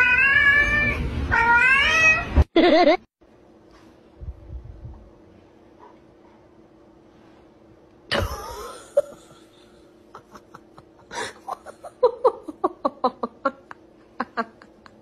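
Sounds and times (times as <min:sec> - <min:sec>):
person laughing: 0:02.6 - 0:03.0, 0:08.1 - 0:15.0.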